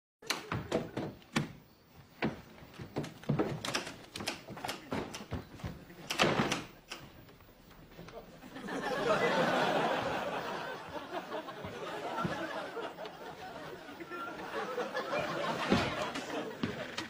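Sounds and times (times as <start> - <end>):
door opening and shutting: 0.2 - 7.4, 15.2 - 17.0
heavy footsteps on floor: 2.0 - 6.0, 10.8 - 12.6, 15.4 - 17.0.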